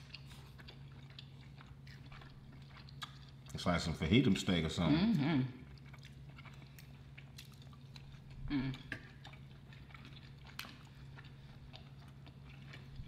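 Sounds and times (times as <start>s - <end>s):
chewing and mouth sounds: 0.0s - 13.0s
steady low hum: 0.0s - 13.0s
person humming: 8.5s - 8.9s.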